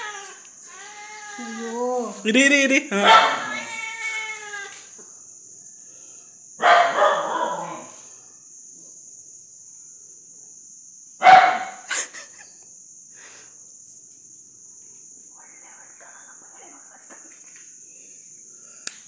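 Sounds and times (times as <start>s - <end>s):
kitten crying: 0.0s - 2.1s, 3.0s - 4.8s
crickets chirping: 0.0s - 19.0s.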